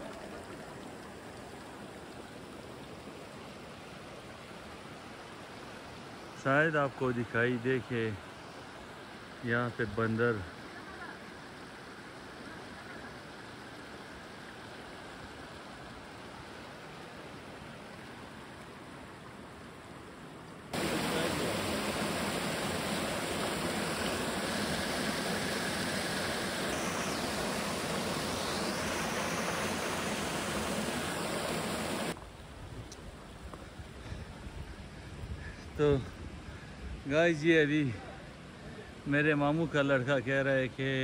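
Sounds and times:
water spilling over boulders: 0.0s - 2.7s, 20.8s - 32.2s
faint mountain stream rushing: 0.0s - 41.0s.

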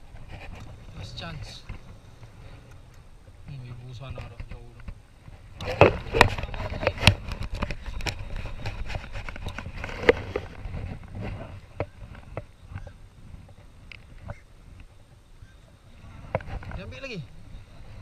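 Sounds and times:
knocks and clatter on aluminium boat: 4.0s - 14.4s.

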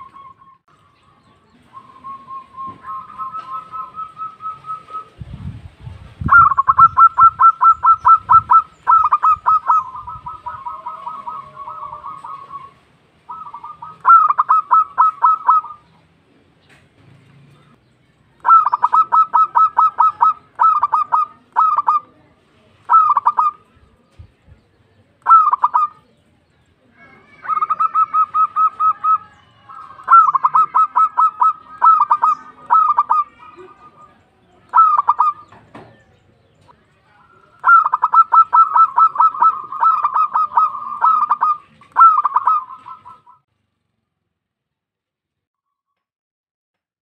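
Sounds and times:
dove cooing: 1.7s - 5.2s, 6.2s - 16.0s, 18.4s - 23.7s, 25.2s - 26.2s, 27.0s - 36.7s, 37.3s - 43.4s.

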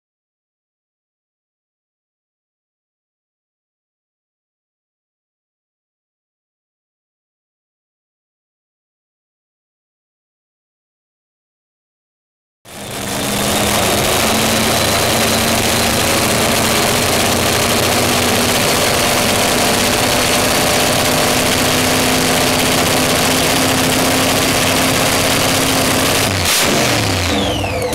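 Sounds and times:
loud engine running: 12.7s - 27.9s.

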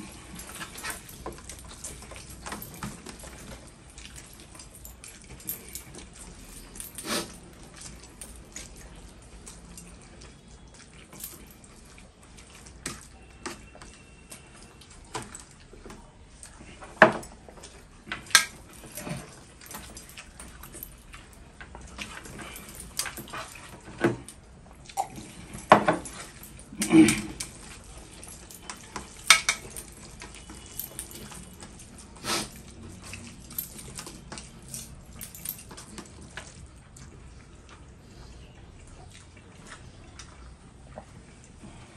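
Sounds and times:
mouths chewing: 0.0s - 41.9s
clicks and clinks on steel plates: 18.1s - 20.9s, 28.2s - 31.8s.

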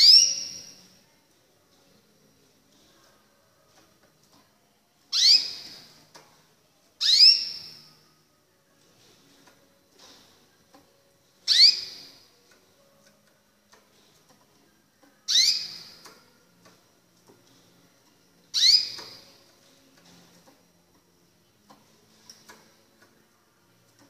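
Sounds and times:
canary chirping: 0.0s - 0.9s, 5.1s - 6.2s, 7.0s - 8.0s, 11.4s - 13.2s, 15.1s - 16.2s, 18.4s - 19.5s.

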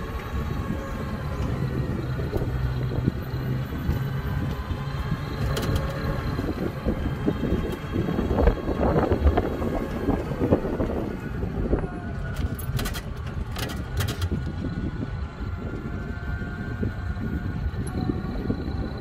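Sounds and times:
tyres rumbling on road: 0.0s - 19.0s
rattles and knocks: 12.3s - 14.6s.

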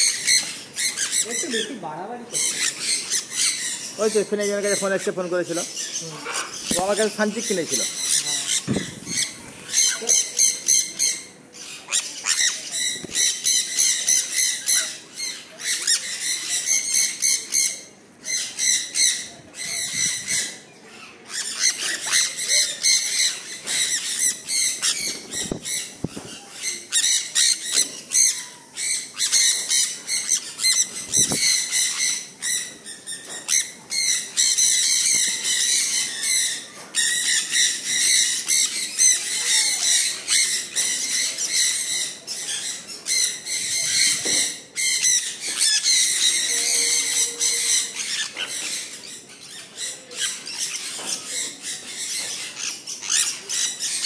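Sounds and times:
parrots calling shrilly: 0.0s - 54.0s.

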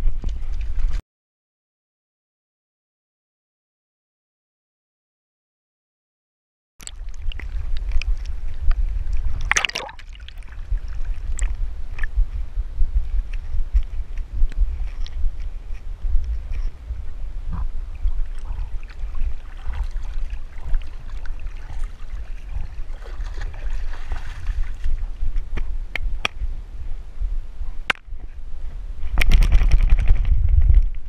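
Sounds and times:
water sloshing and gurgling: 6.8s - 26.5s
low rumble: 6.8s - 31.0s.

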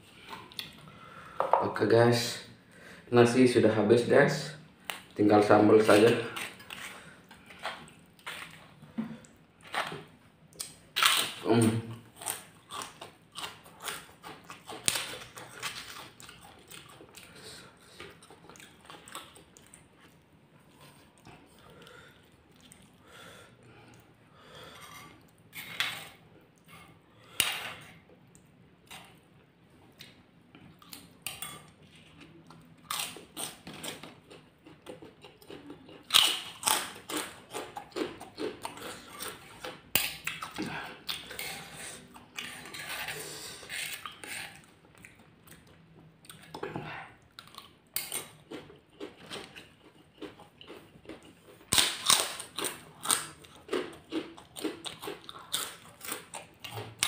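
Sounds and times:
crackers crunching: 4.8s - 23.0s, 30.0s - 45.7s, 46.3s - 57.0s.

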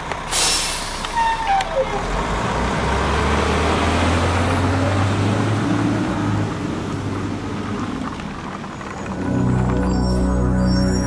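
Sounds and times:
truck engine running: 6.4s - 11.0s.

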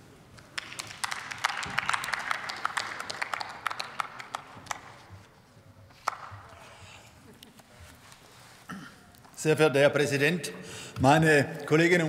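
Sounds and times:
sparse applause in a hall: 0.4s - 5.3s.

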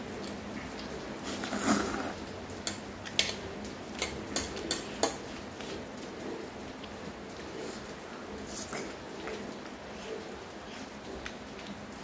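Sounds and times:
wet eating noise: 0.0s - 12.0s
fork clicking against plate: 4.0s - 5.2s.

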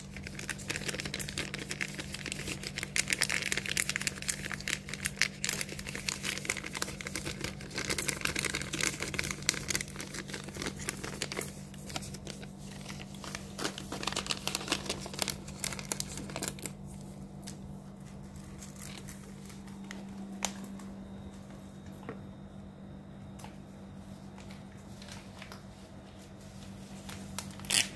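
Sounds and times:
plastic bag crinkling: 0.0s - 20.9s, 27.0s - 27.9s
steady low hum: 0.0s - 27.9s.

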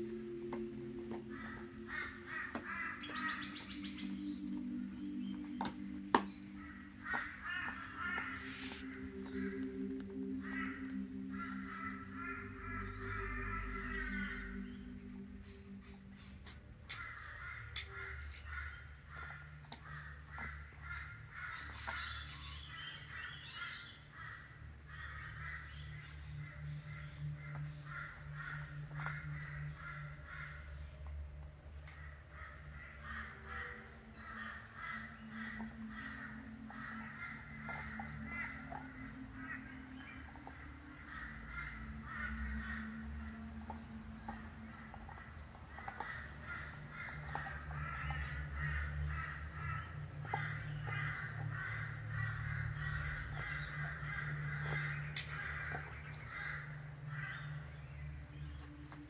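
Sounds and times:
birds calling: 0.0s - 59.0s
dog crunching bones: 40.2s - 56.2s.

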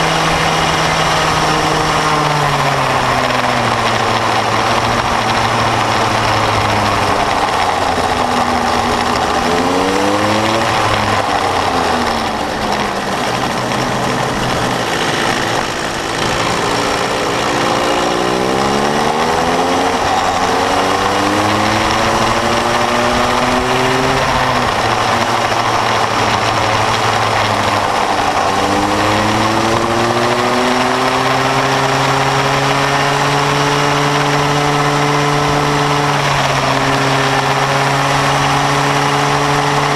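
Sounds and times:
go-kart engine revving: 0.0s - 39.9s
road and wind noise: 0.0s - 39.9s.

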